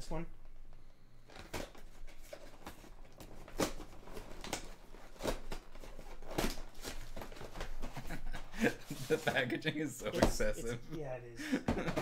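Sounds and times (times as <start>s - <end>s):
packaging rustling: 1.2s - 9.4s.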